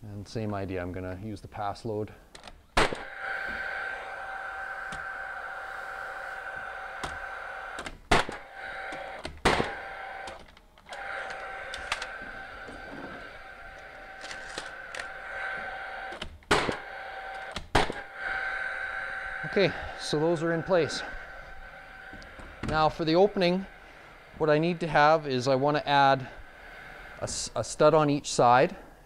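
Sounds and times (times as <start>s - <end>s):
nailer fan whirring: 2.4s - 28.9s
nail gun shots: 2.8s - 3.1s, 8.1s - 8.4s, 9.4s - 10.4s, 16.2s - 16.8s, 17.5s - 18.0s.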